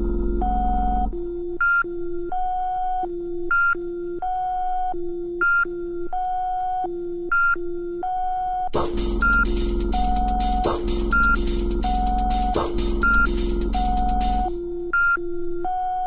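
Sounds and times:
synth riff of beeping tones: 0:00.0 - 0:01.8, 0:08.8 - 0:15.2.

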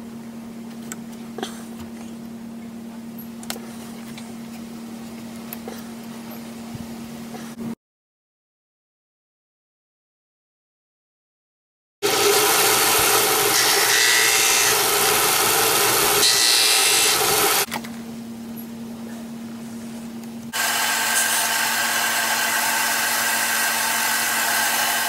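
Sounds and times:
sander motor hum: 0:12.0 - 0:17.7, 0:20.2 - 0:25.0
disc sander rasping on wood: 0:12.1 - 0:17.7.

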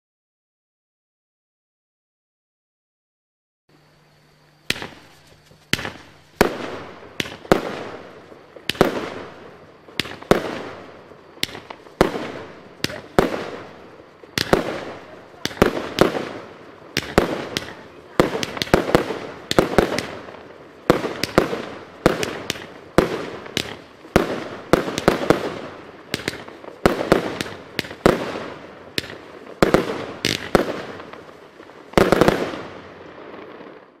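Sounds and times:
firework shots launching: 0:04.6 - 0:33.5
loud firework reports: 0:04.7 - 0:20.3.

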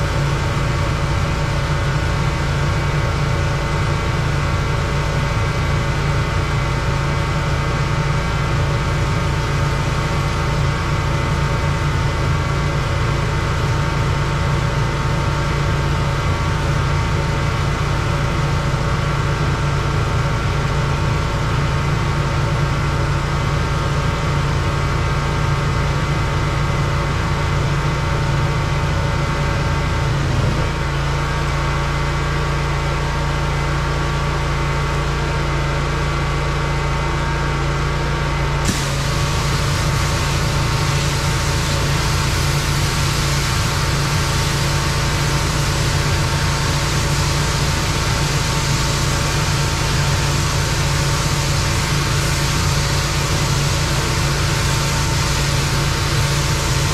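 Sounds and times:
pressure washer engine running: 0:00.0 - 0:56.9
loud hiss of spray: 0:38.6 - 0:56.9.

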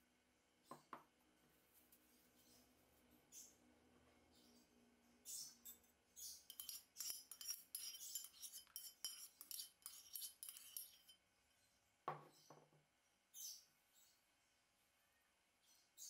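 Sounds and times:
metal spoon scraping dish: 0:06.3 - 0:11.2.

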